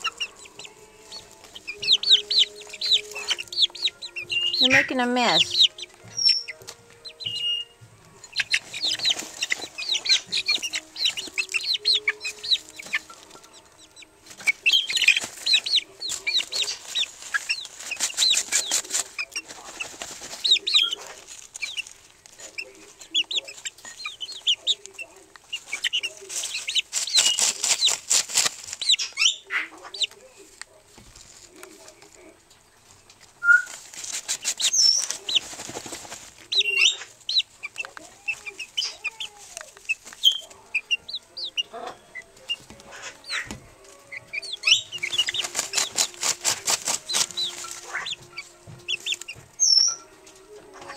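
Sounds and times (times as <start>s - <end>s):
feet scratching feed: 0.0s - 32.3s, 33.1s - 50.0s
chickens clucking: 0.0s - 50.9s
wings flapping: 8.2s - 13.5s, 14.2s - 29.3s, 33.4s - 40.6s, 44.2s - 49.8s.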